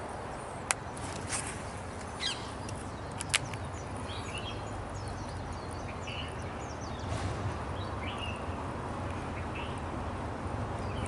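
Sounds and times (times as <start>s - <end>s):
small birds chirping: 0.4s - 11.0s
sharp clicks: 2.6s - 3.8s.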